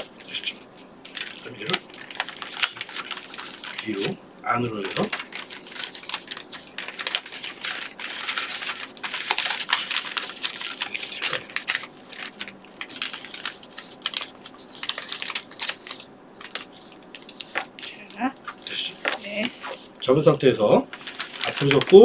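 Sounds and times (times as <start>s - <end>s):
paper crinkling and rustling: 0.0s - 22.0s.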